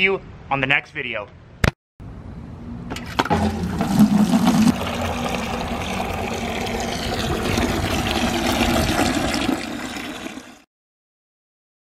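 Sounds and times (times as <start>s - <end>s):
water pouring into plastic bucket: 3.2s - 10.7s.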